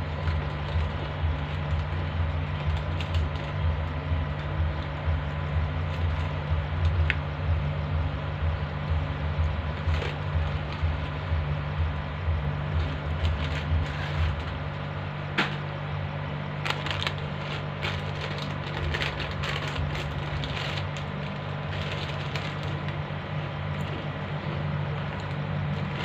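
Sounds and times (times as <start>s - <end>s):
plastic packet crinkling: 0.0s - 3.6s, 16.6s - 23.0s
steady low hum: 0.0s - 26.0s
crunching chips: 16.6s - 23.0s.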